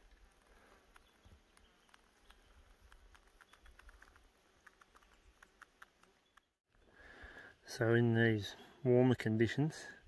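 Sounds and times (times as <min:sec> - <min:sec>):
faint small clicks and ticks: 0:00.0 - 0:06.6.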